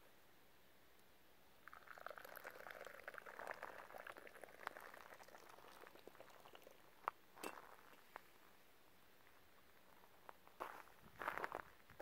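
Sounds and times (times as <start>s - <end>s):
tea pouring into a glass: 1.6s - 7.0s.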